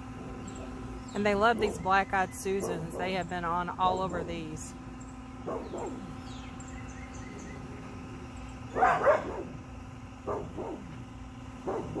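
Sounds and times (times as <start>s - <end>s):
steady low hum: 0.0s - 12.0s
dog barking: 2.6s - 3.1s, 5.4s - 6.1s, 8.7s - 9.6s, 10.2s - 10.9s, 11.6s - 12.0s.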